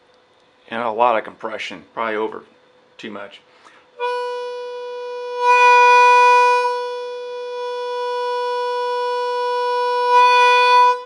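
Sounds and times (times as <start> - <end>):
harmonica holding a note: 3.6 - 11.0.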